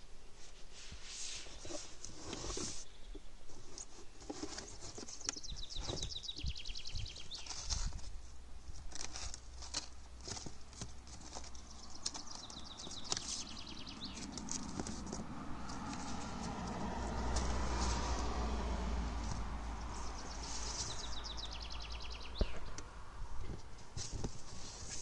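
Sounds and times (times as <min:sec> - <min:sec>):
knocks and scrapes on cardboard: 0:00.8 - 0:02.9, 0:03.5 - 0:08.1, 0:08.9 - 0:18.1, 0:23.4 - 0:25.0.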